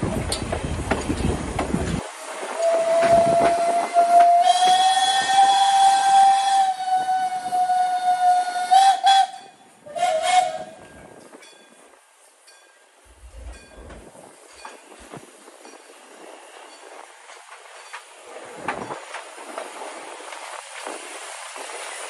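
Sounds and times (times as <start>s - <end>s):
steam locomotive whistle: 2.4s - 11.0s.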